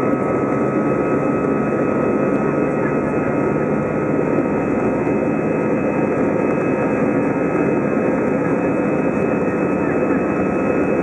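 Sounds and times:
jet engine rumble and hiss: 0.0s - 11.0s.

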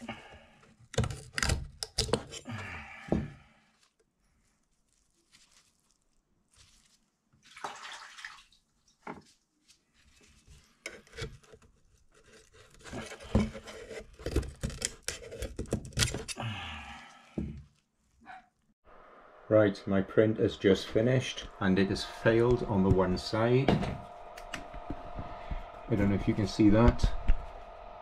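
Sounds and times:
rapid scrapes clicks and knocks: 0.0s - 2.4s, 10.2s - 16.4s.

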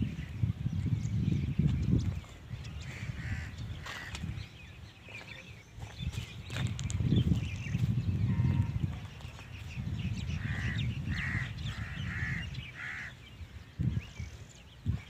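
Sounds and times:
low rumble on microphone: 0.0s - 15.0s
crow cawing: 10.4s - 13.2s.

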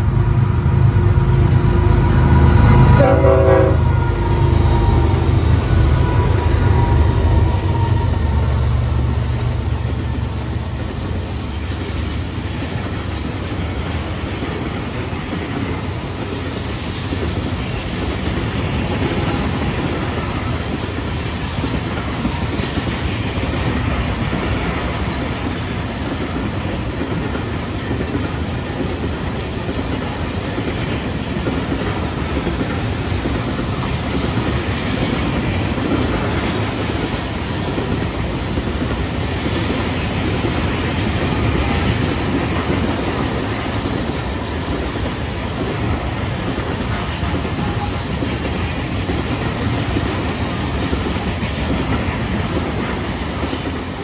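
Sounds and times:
locomotive engine rumble: 0.0s - 13.8s
freight cars clickety-clack on rails: 0.0s - 54.0s
train horn: 0.8s - 8.8s.

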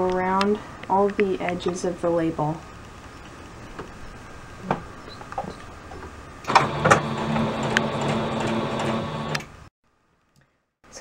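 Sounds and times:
electric sewing machine running: 6.5s - 9.5s.

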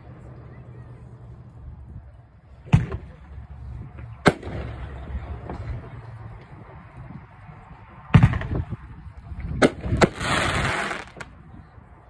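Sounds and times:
firework sharp reports: 9.6s - 11.3s.

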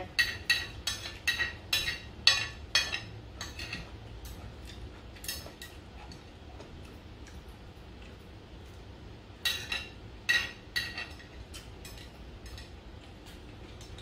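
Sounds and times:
metal spoon clinking on glass plate: 0.2s - 3.9s.

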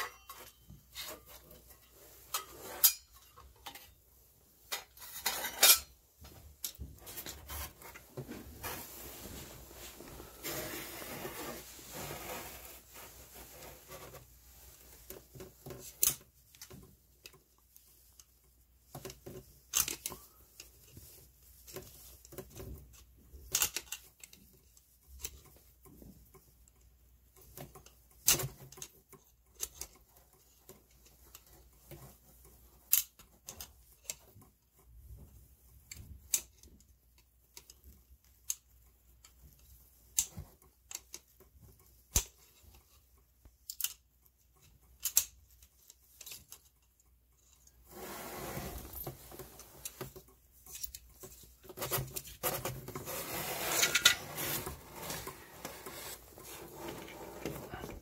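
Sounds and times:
scraping noise: 47.9s - 49.6s, 53.0s - 58.0s.

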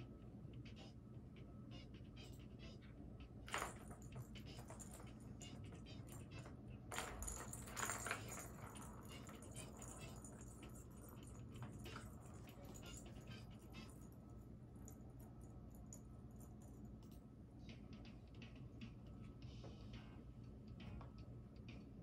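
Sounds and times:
faint room noise: 0.0s - 22.0s
plastic ball toy rattling: 3.5s - 14.1s.

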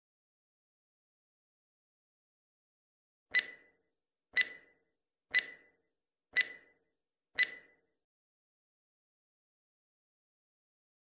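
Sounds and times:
countdown timer ticks: 3.3s - 3.8s, 4.4s - 5.8s, 6.4s - 6.8s, 7.4s - 7.8s.

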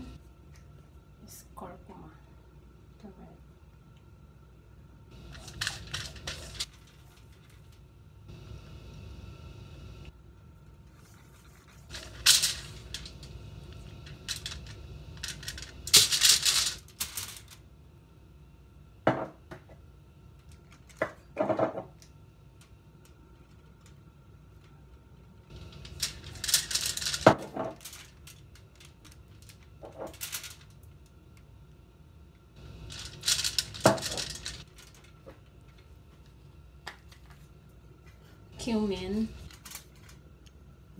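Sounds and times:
aluminium foil crinkling: 5.1s - 7.8s, 10.9s - 17.6s, 23.4s - 31.1s, 32.6s - 36.3s, 38.6s - 40.5s
spice shaker rattling: 5.2s - 7.4s, 11.8s - 17.5s, 25.5s - 30.8s, 32.6s - 35.1s.

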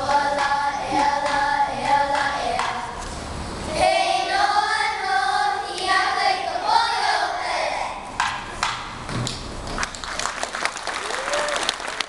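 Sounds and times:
children singing together: 0.0s - 3.0s, 3.7s - 8.1s
applause: 9.7s - 12.0s.

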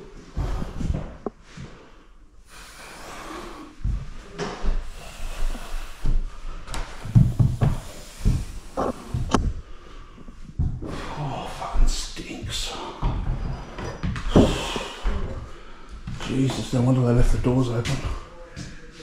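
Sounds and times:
knocks and thumps: 6.7s - 9.6s, 13.0s - 15.3s.

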